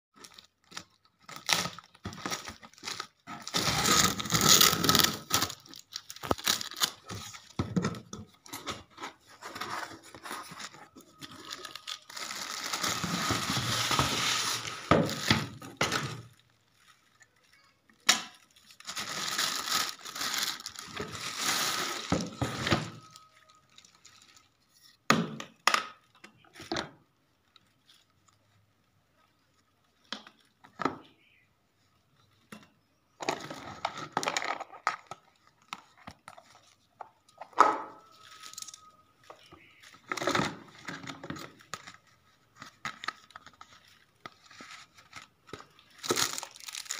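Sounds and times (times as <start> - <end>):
plastic wrap crinkling and tearing: 0.2 - 7.6, 8.4 - 25.1, 38.0 - 46.9
packing tape ripping: 0.7 - 7.1
cardboard rustling: 1.4 - 16.3.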